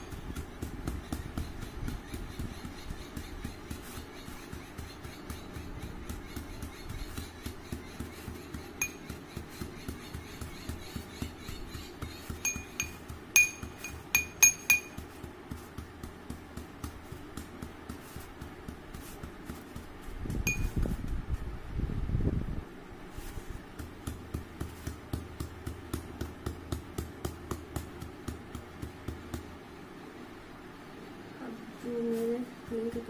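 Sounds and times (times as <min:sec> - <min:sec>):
metal pestle pounding in mortar: 0:04.5 - 0:18.7
ringing metal clinks: 0:12.4 - 0:15.0, 0:20.5 - 0:20.8.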